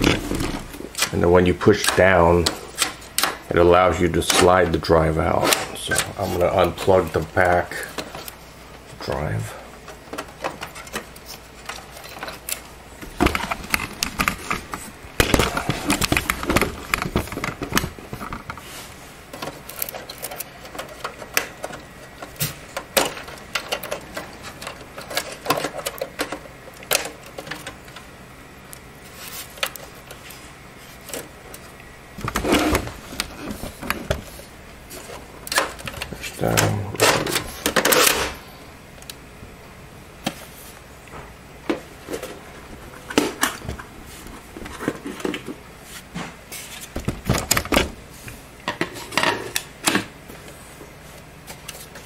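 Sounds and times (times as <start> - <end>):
plastic and metal clicks and rattles: 19.3 - 28.1.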